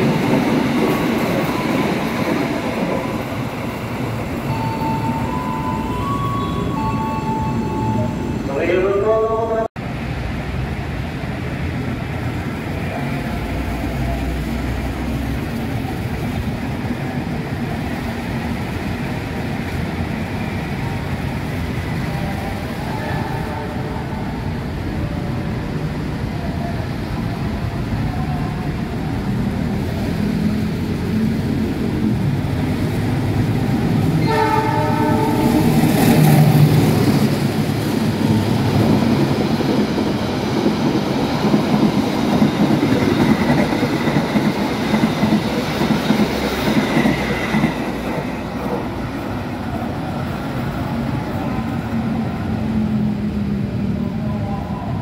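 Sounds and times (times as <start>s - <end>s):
train horn: 22.8s - 24.4s, 34.2s - 35.8s
train coaches clattering on rails: 32.6s - 52.0s.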